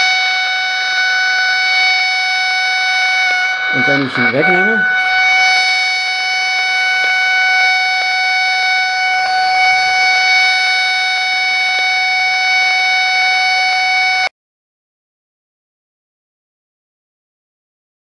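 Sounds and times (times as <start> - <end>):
buzzy interference whistle: 0.0 - 14.3.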